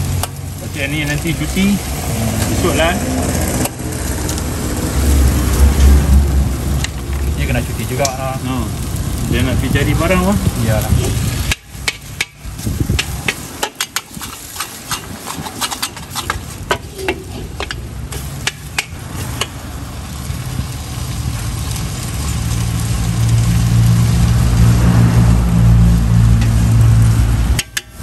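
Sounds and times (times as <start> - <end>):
metal spatula scraping in a wok: 11.0 - 19.6
low engine-like hum: 19.6 - 27.6.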